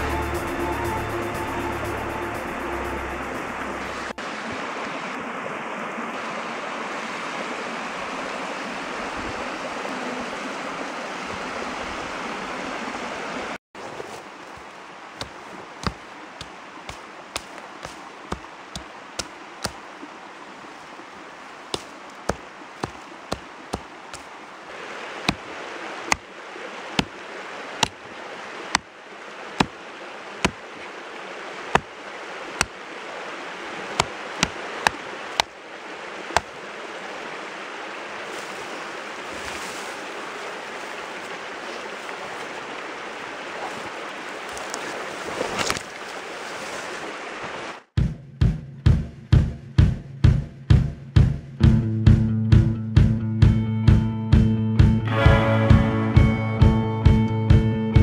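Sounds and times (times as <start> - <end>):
river water rushing: 0.0 - 47.9
axe chopping into tree trunk: 15.2 - 19.8, 21.7 - 24.3, 25.2 - 25.5, 26.1 - 26.3, 27.0 - 27.2, 27.8 - 28.0, 29.6 - 29.8, 31.7 - 31.9, 32.6 - 32.8, 34.0 - 35.5, 36.3 - 36.5, 45.4 - 45.8.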